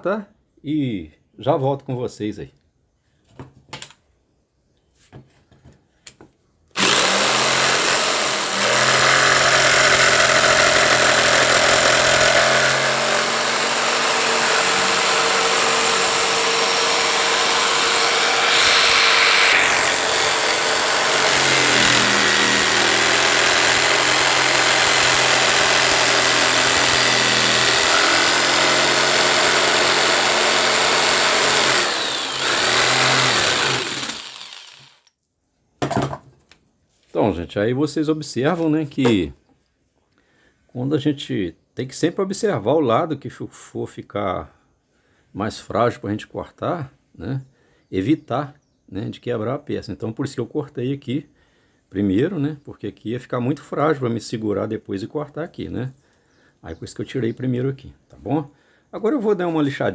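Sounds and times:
jigsaw cutting wood: 0:06.8 - 0:35.1.

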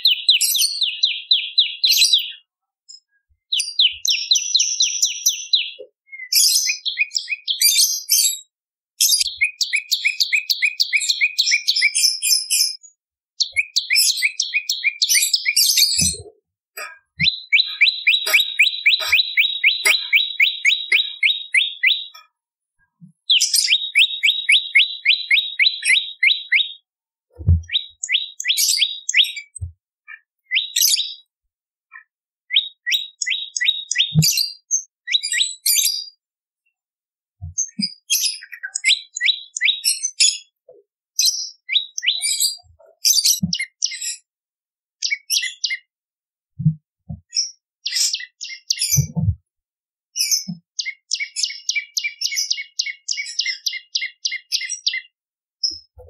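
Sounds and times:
warbler trilling chirps: 0:00.0 - 0:02.4, 0:09.1 - 0:12.8, 0:13.4 - 0:22.2, 0:23.3 - 0:26.8, 0:27.6 - 0:29.6, 0:32.5 - 0:35.4, 0:37.9 - 0:40.0, 0:41.5 - 0:42.6, 0:50.3 - 0:55.1.

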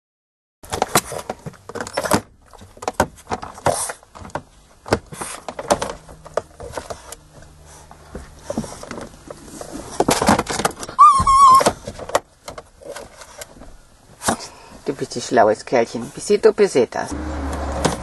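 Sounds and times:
dog playing with ball: 0:00.7 - 0:14.6.

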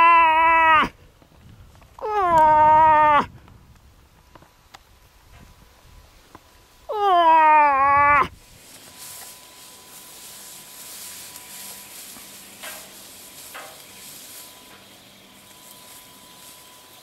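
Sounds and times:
grass and brush rustling: 0:00.0 - 0:17.0
faint steady hiss: 0:03.3 - 0:07.0, 0:08.2 - 0:17.0.

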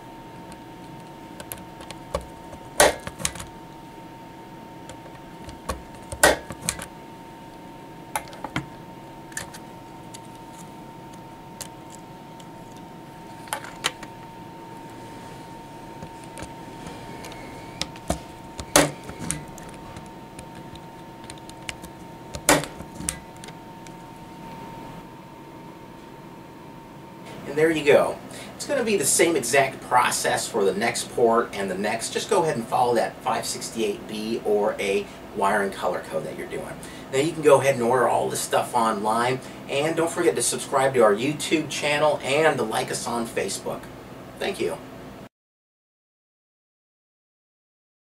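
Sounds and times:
punch-down tool snapping: 0:02.2 - 0:03.5, 0:05.5 - 0:06.9, 0:17.8 - 0:19.7, 0:22.4 - 0:23.5.

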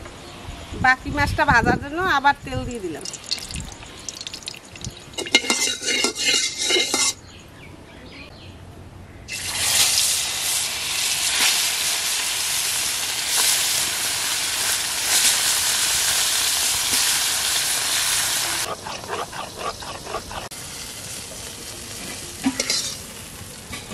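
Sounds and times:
fish sizzling in hot oil: 0:03.0 - 0:06.4, 0:09.3 - 0:23.9
utensils clinking and knocking: 0:04.4 - 0:07.2.

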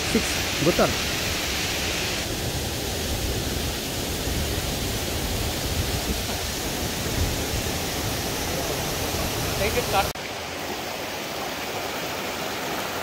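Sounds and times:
fast-flowing water rushing: 0:00.0 - 0:13.0.

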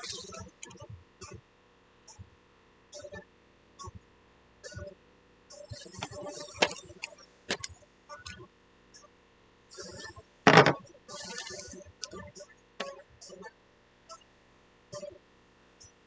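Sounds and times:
bowling pins clicking and knocking: 0:10.5 - 0:10.8.

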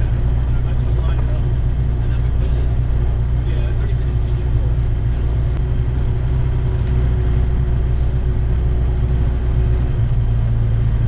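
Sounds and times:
aircraft engine droning: 0:00.0 - 0:11.0.

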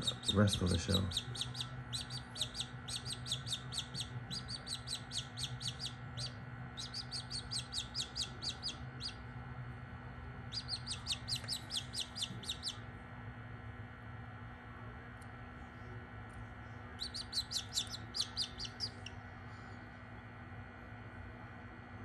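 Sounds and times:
chicks peeping rapidly: 0:00.0 - 0:09.2, 0:10.5 - 0:12.8, 0:17.0 - 0:19.1
low steady hum: 0:00.0 - 0:22.0.

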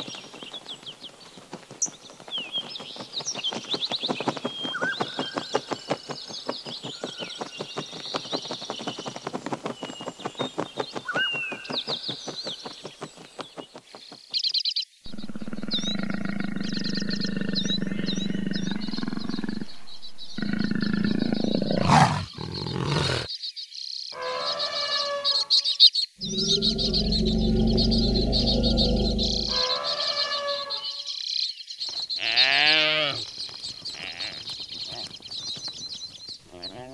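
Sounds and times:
elephant low calls: 0:15.1 - 0:23.3, 0:26.2 - 0:29.9
high bird chirps: 0:15.1 - 0:23.3, 0:24.2 - 0:31.1
leopard calling: 0:15.1 - 0:23.3, 0:26.2 - 0:30.6.

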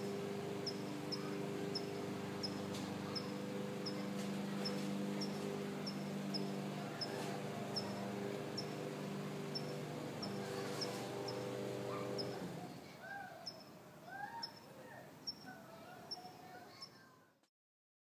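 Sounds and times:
steady low hum: 0:00.0 - 0:12.7
faint high chirp: 0:00.6 - 0:07.2, 0:13.2 - 0:17.1.

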